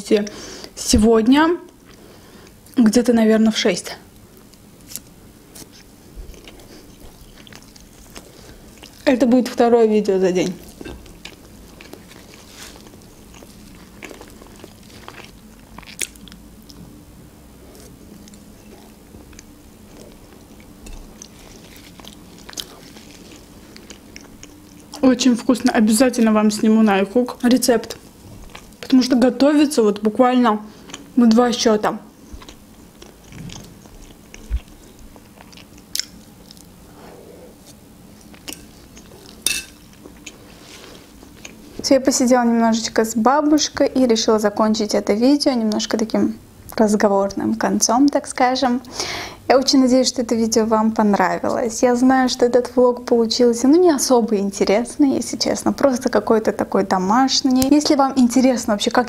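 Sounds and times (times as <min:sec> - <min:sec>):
chewing soft cake: 0:01.6 - 0:02.8, 0:04.1 - 0:29.2, 0:30.7 - 0:31.4, 0:32.1 - 0:41.8.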